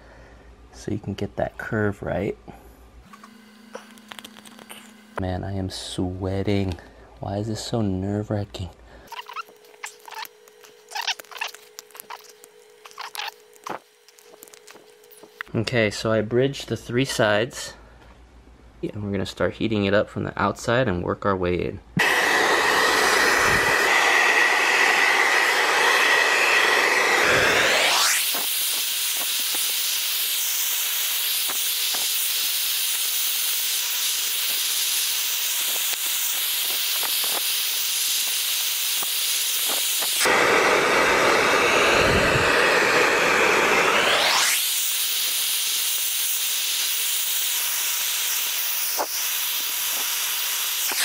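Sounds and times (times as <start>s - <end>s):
hair dryer blowing: 22.0s - 51.0s.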